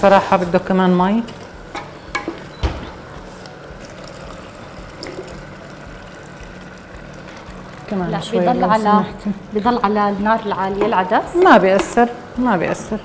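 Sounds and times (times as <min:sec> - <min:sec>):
water pouring into a pot: 0:03.5 - 0:08.9.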